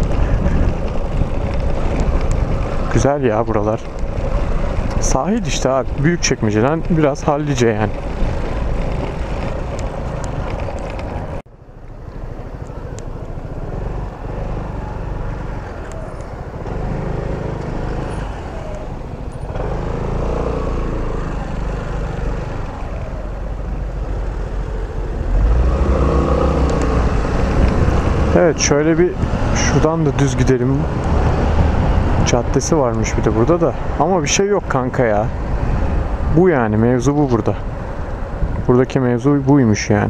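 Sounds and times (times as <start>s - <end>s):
wind on microphone: 0.0s - 3.0s, 22.3s - 36.7s, 37.5s - 38.7s
scooter engine: 0.0s - 5.6s, 6.7s - 11.4s, 12.0s - 30.2s
road noise: 0.0s - 40.0s.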